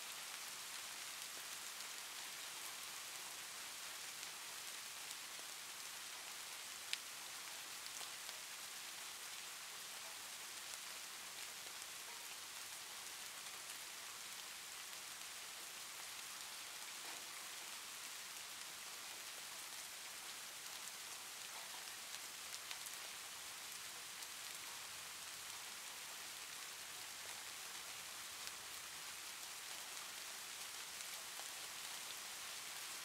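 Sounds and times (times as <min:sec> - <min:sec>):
faint steady hiss: 0:00.0 - 0:33.0
faint ticks: 0:06.9 - 0:08.5, 0:16.6 - 0:17.8, 0:20.7 - 0:32.9.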